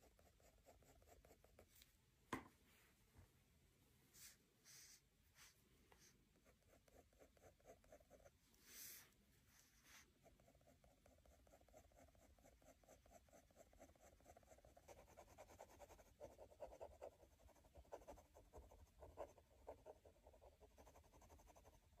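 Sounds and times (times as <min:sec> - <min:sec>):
pen scratching on paper: 0:06.4 - 0:09.0, 0:09.8 - 0:21.9.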